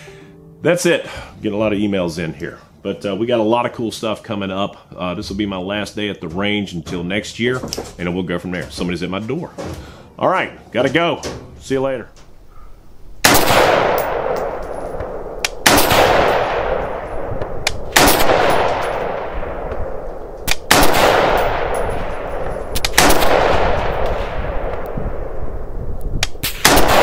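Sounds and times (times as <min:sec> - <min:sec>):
rifle shots with echo: 0:13.2 - 0:25.6, 0:26.3 - 0:27.0.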